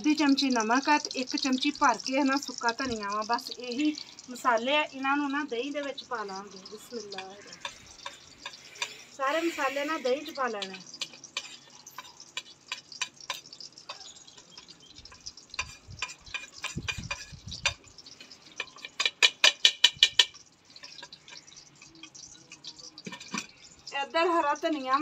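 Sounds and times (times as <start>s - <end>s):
metal spoon clinking on a plate: 6.8s - 9.1s, 10.5s - 23.8s.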